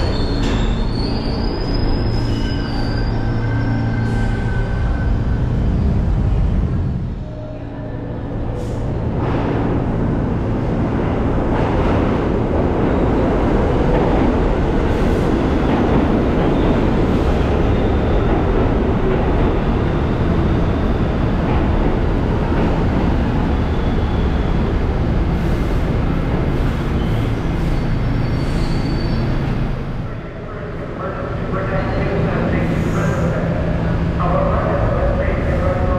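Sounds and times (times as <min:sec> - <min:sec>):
subway train wheels rumbling: 0:00.0 - 0:35.9.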